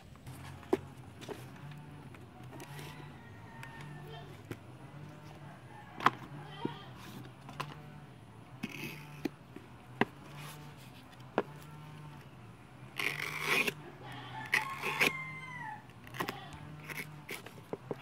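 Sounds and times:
knife rasping through rubber: 8.5s - 11.7s, 12.9s - 18.0s.

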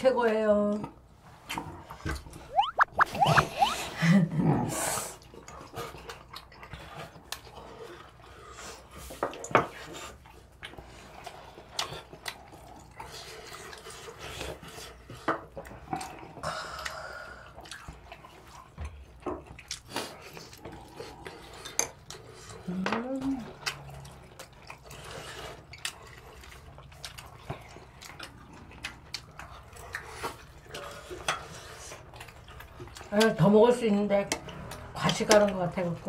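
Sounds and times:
sipping soup: 2.4s - 4.0s.

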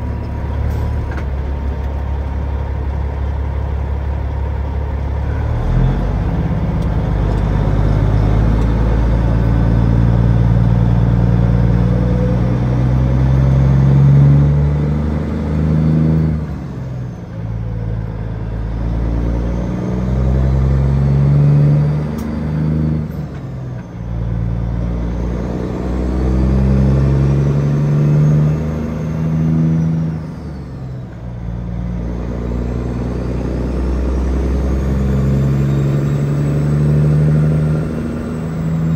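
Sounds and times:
truck diesel engine shifting gears: 0.0s - 38.9s.

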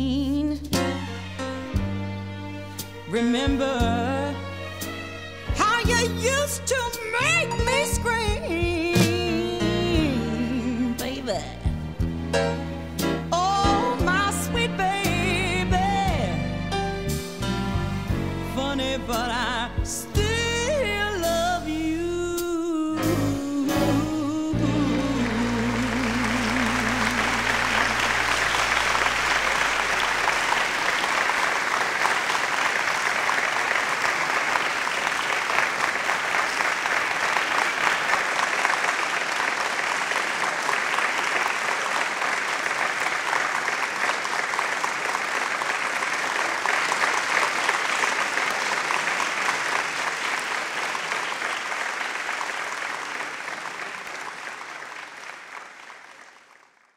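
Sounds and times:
audience applauding: 24.6s - 56.9s.

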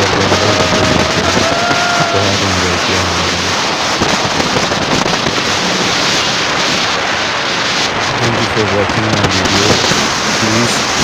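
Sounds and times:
vehicle running on dirt track: 0.0s - 2.2s
wind buffeting microphone: 0.0s - 11.0s.

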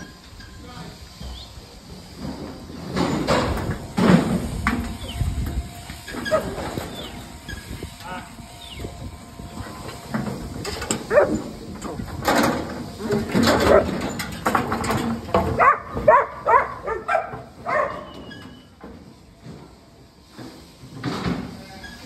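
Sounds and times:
dog barking: 11.1s - 11.4s, 15.6s - 18.1s.

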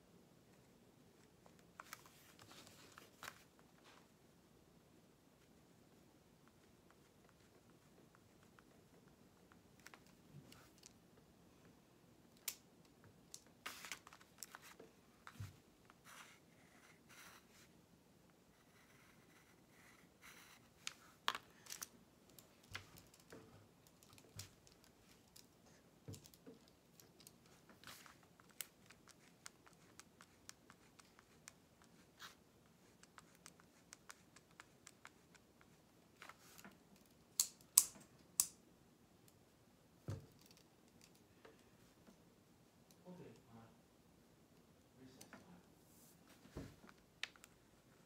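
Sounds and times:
pencil scratching on paper: 18.5s - 20.8s.

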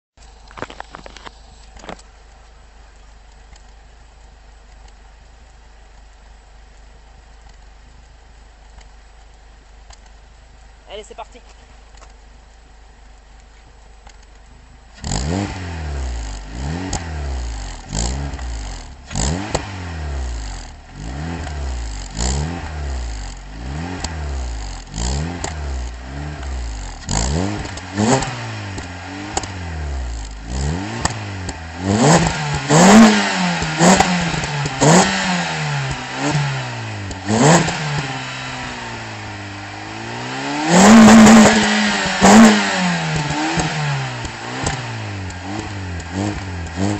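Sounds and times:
exhaust cracks: 0.2s - 46.9s
car engine revving: 14.0s - 46.9s.

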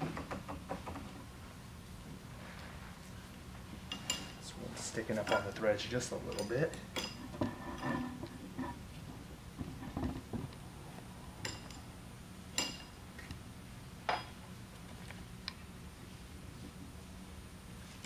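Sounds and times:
wrench clinking on metal: 6.2s - 7.2s.

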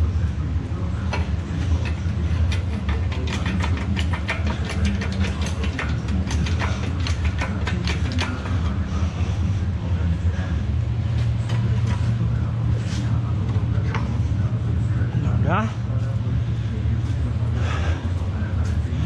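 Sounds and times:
steady low hum: 0.0s - 19.0s
chain rattling and clicking: 1.1s - 8.5s.

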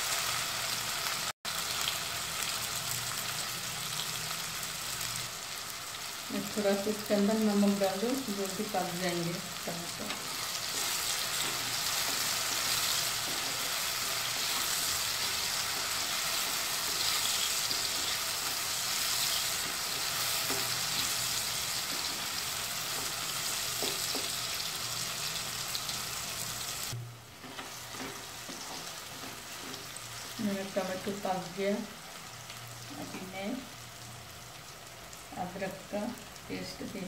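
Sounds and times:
onions and tomatoes sizzling in oil: 0.0s - 37.0s
wooden spatula stirring: 10.0s - 24.5s, 27.4s - 30.4s.

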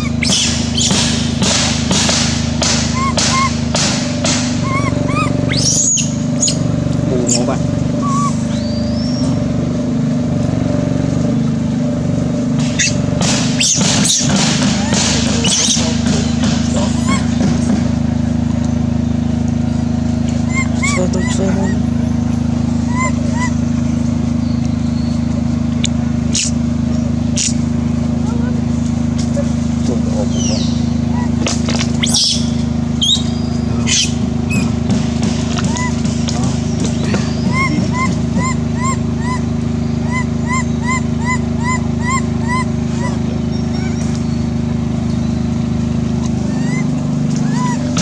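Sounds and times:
monkey squeaks: 0.0s - 1.1s, 2.8s - 3.6s, 4.5s - 9.3s, 12.8s - 13.0s, 13.6s - 17.4s, 20.4s - 23.6s, 26.3s - 26.6s, 27.4s - 27.6s, 30.3s - 34.8s, 35.6s - 44.4s, 46.3s - 48.0s
short chirping calls: 0.0s - 1.1s, 2.8s - 3.6s, 4.4s - 9.4s, 12.7s - 17.6s, 20.2s - 26.6s, 27.3s - 27.6s, 30.2s - 34.8s, 35.6s - 48.0s
low mechanical motor drone: 0.0s - 48.0s.

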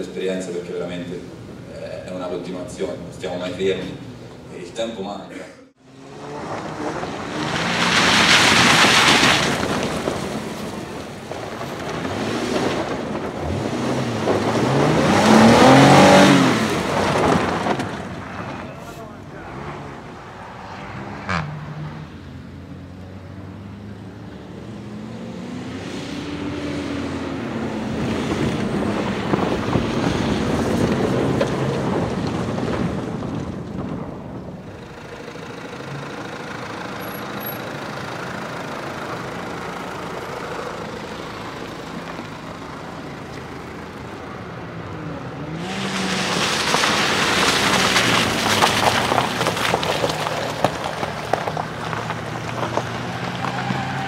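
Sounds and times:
suv engines revving: 5.7s - 54.0s
tyres crunching on gravel: 6.4s - 20.7s, 45.4s - 54.0s.

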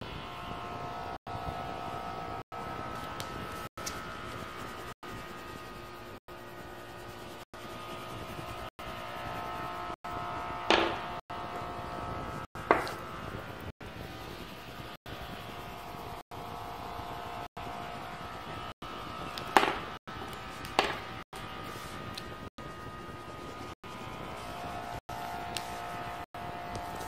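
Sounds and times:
steady hum: 0.0s - 27.0s
crayons knocking on wooden tabletop: 12.7s - 13.0s.

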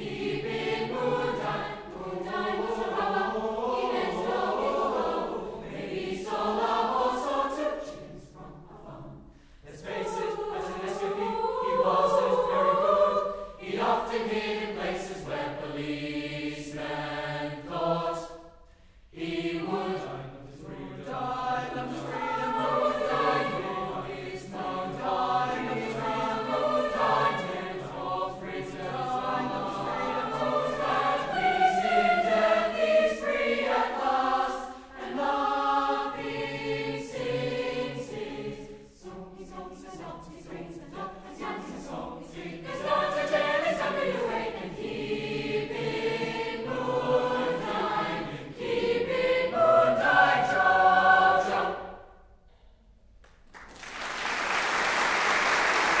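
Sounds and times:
choir singing: 0.0s - 52.5s
applause: 53.2s - 56.0s.

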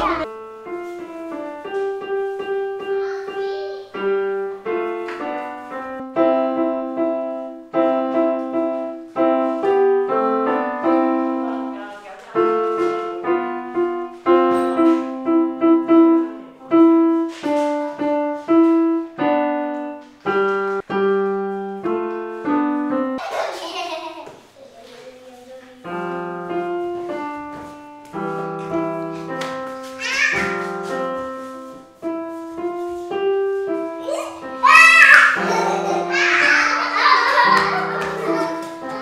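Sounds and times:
child playing piano tune: 0.0s - 11.8s, 12.4s - 24.0s, 25.8s - 39.0s
children's voices crying out: 30.0s - 30.5s, 34.0s - 39.0s.

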